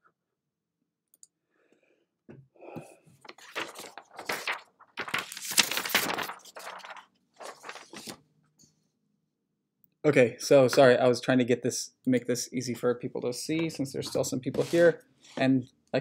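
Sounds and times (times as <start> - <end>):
paper rustling and crinkling: 3.2 - 8.2, 14.0 - 15.0.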